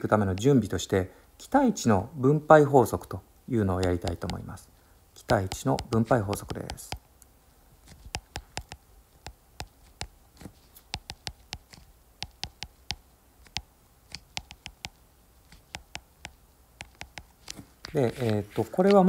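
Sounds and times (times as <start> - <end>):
stylus tapping on glass screen: 3.8 - 4.6, 5.2 - 7.1, 7.9 - 19.0.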